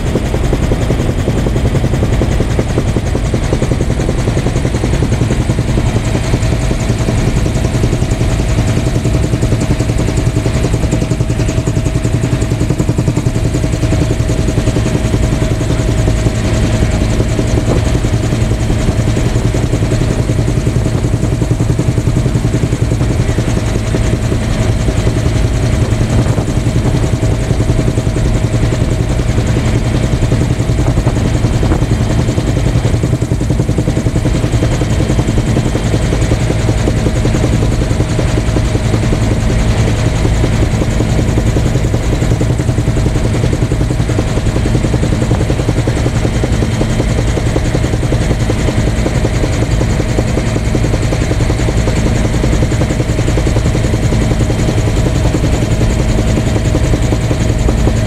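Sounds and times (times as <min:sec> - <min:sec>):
light aircraft engine drone: 0:00.0 - 0:58.0.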